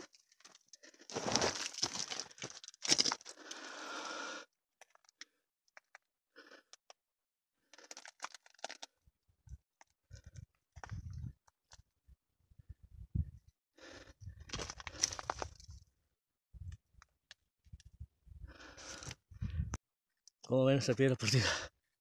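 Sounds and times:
footsteps on gravel: 0:01.1 - 0:03.3.

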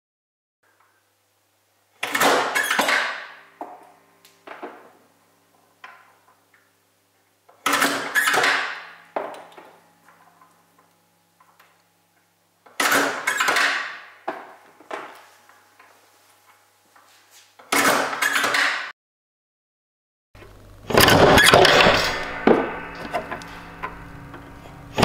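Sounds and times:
grafting machine metallic clacks: 0:20.9 - 0:25.0.

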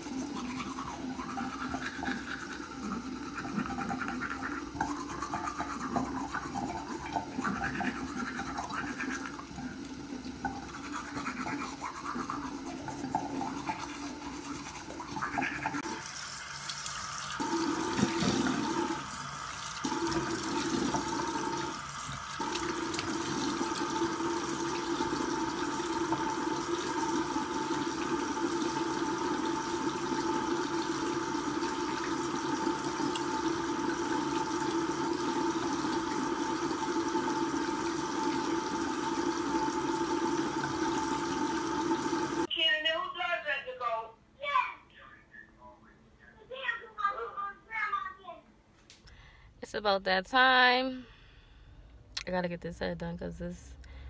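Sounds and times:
toothbrush scrubbing teeth: 0:00.0 - 0:16.0, 0:16.7 - 0:19.0, 0:19.7 - 0:42.5.

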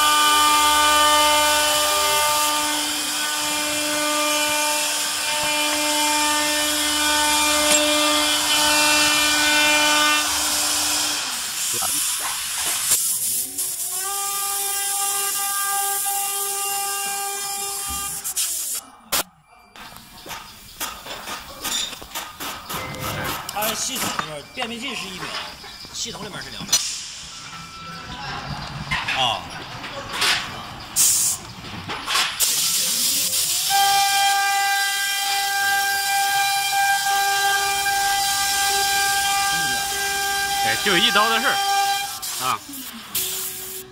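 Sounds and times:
router spindle whine: 0:00.0 - 0:11.5, 0:33.7 - 0:42.6
steady hiss: 0:10.3 - 0:16.8, 0:32.3 - 0:34.0, 0:35.4 - 0:43.9.

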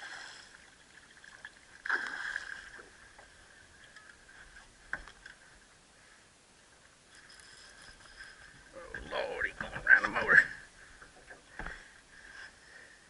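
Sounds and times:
fish splashing in water: 0:01.0 - 0:02.9.

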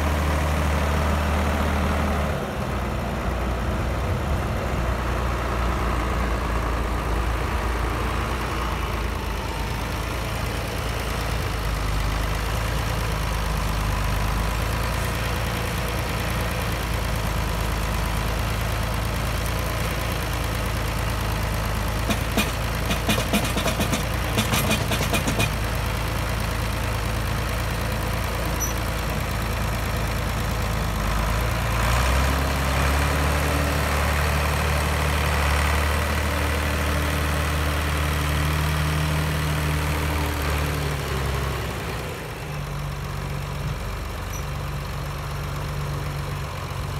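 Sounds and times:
tractor diesel engine running: 0:00.0 - 0:46.9
loader bucket knocks and clatter: 0:22.1 - 0:25.6.

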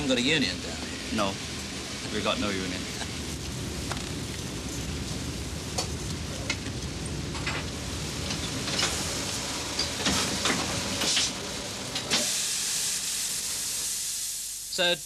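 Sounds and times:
steam hissing: 0:07.1 - 0:15.0.

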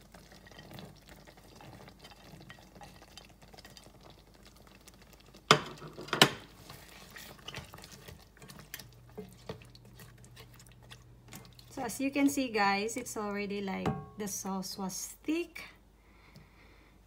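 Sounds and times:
stirring soup in a pot: 0:00.0 - 0:13.0.

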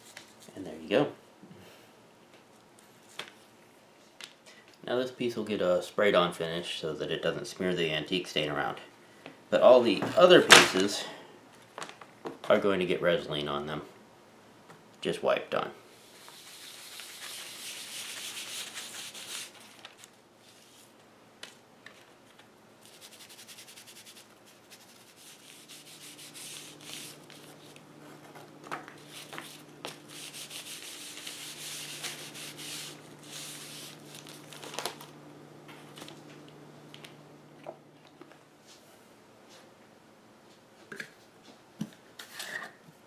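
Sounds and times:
applicator rubbing on leather: 0:23.0 - 0:34.1
steady low hum: 0:24.7 - 0:40.4.

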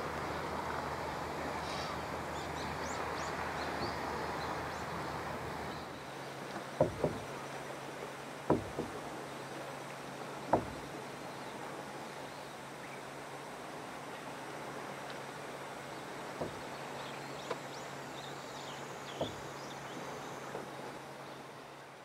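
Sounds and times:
calm open water: 0:00.0 - 0:22.0
knocks on small boat: 0:06.5 - 0:07.5, 0:08.4 - 0:09.2, 0:10.4 - 0:11.1, 0:16.3 - 0:16.8, 0:19.1 - 0:20.7.

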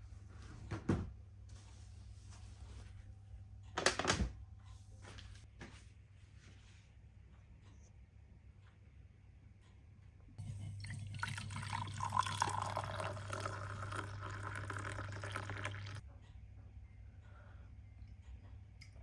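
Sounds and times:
low steady hum: 0:00.0 - 0:19.0
coffee pouring into glass mug: 0:10.4 - 0:16.0.

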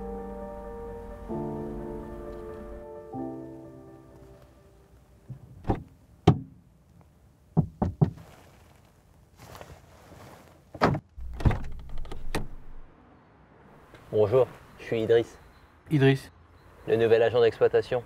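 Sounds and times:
knocking on car window: 0:07.6 - 0:08.2.

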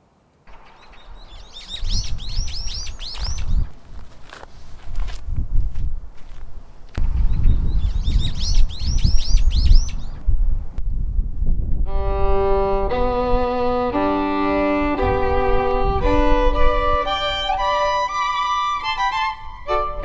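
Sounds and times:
small bird chirping: 0:00.5 - 0:03.8, 0:07.0 - 0:10.2
low rumble: 0:10.1 - 0:17.9
violin playing slow notes: 0:11.8 - 0:20.0.

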